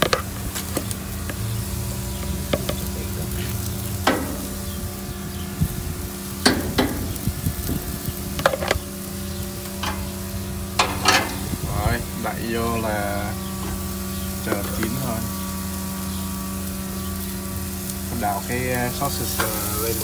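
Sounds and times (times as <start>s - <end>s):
low hum: 0.0s - 20.0s
meat sizzling on grill: 0.0s - 20.0s
metal tongs clacking on grill grate: 3.8s - 4.8s, 6.3s - 7.3s, 9.6s - 11.6s, 18.9s - 20.0s.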